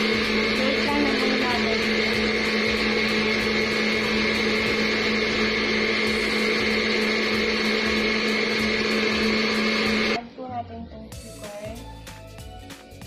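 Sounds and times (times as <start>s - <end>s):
stand mixer motor humming: 0.0s - 10.2s.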